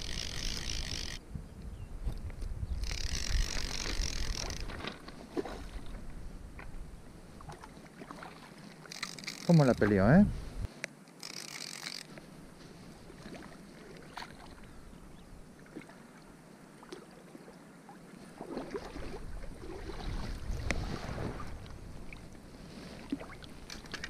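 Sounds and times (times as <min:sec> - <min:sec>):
river water splashing: 0:03.0 - 0:09.7, 0:11.2 - 0:14.9, 0:15.5 - 0:24.0.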